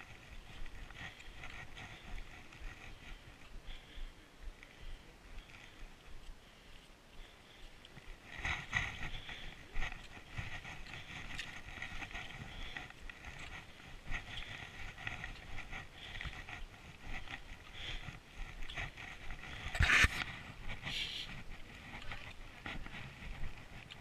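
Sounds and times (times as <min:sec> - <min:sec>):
trekking poles planted in snow: 0:00.0 - 0:24.0
footsteps crunching on snow: 0:07.2 - 0:24.0
scrape on snow: 0:19.8 - 0:21.2.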